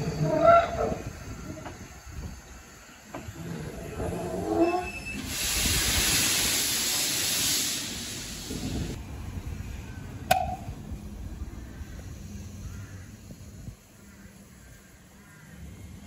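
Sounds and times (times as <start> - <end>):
steam hissing: 0.0 - 9.0.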